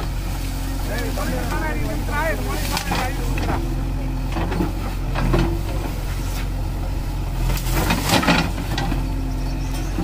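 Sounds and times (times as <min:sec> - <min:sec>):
diesel engine running: 0:00.0 - 0:10.0.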